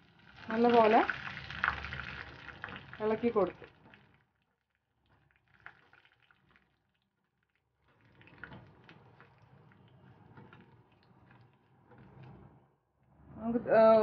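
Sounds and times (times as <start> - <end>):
spices sizzling in hot oil: 0.0 - 4.1.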